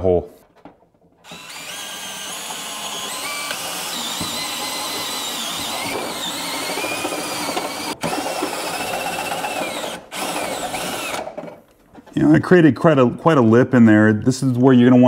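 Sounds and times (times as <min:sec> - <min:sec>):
cordless drill cutting steel: 0:01.2 - 0:11.4.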